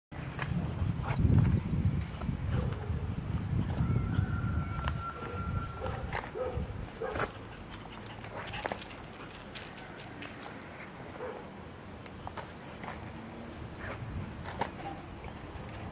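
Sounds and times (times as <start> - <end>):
cricket chirping: 0.2 - 15.9.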